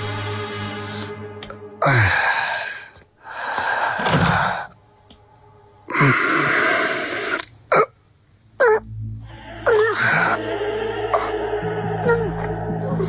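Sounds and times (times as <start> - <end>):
man groaning in pain: 1.8 - 2.7, 9.6 - 13.0.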